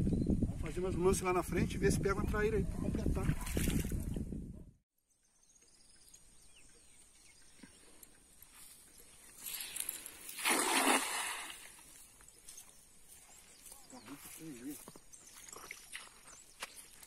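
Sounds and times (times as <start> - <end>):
net splashing into water: 9.4 - 11.8.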